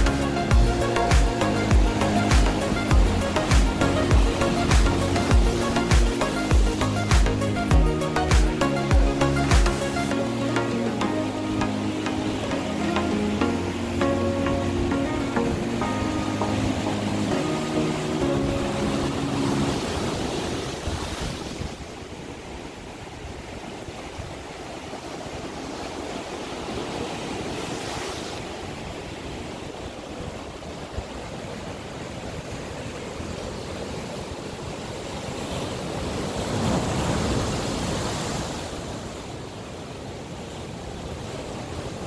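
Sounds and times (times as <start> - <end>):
surf breaking over rocks: 0.0 - 7.4.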